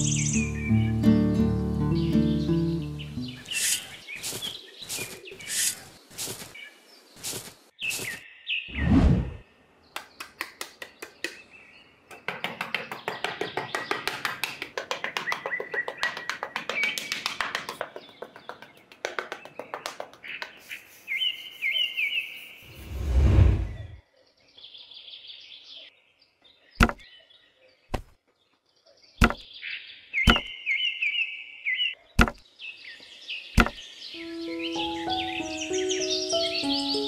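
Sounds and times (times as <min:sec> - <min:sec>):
birds chirping: 0:00.0 - 0:37.0
trowel scraping in sand: 0:03.5 - 0:06.6, 0:07.2 - 0:08.2
pieces knocking on sand: 0:26.8 - 0:27.0, 0:29.2 - 0:29.4, 0:30.3 - 0:30.5, 0:32.2 - 0:32.4, 0:33.6 - 0:33.8.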